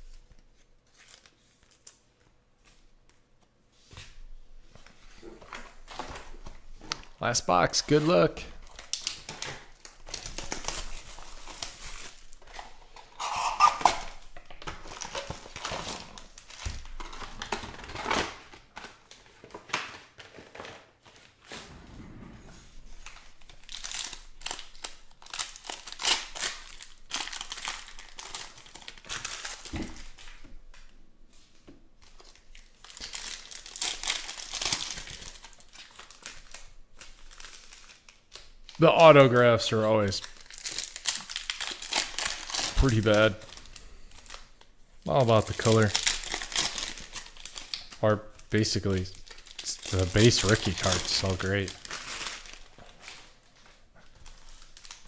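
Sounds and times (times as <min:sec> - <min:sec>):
foil wrappers crinkling and tearing: 0:00.0 - 0:02.1, 0:05.5 - 0:21.4, 0:23.0 - 0:30.9, 0:32.0 - 0:55.0
cards being handled: 0:49.7 - 0:52.2.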